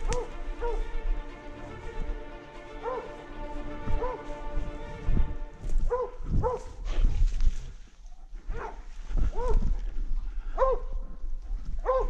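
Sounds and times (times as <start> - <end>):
dog barking: 0.0 - 0.9, 2.8 - 3.2, 4.0 - 4.3, 5.9 - 7.2, 8.5 - 9.8, 10.5 - 11.0, 11.8 - 12.0.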